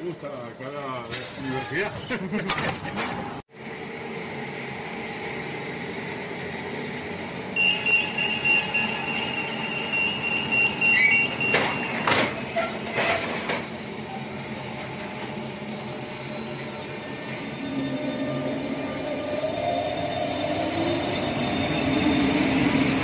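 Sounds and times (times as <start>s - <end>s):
stopped train hum: 2.9s - 23.0s
door warning beep: 7.6s - 12.3s
train doors knocking shut: 11.1s - 13.7s.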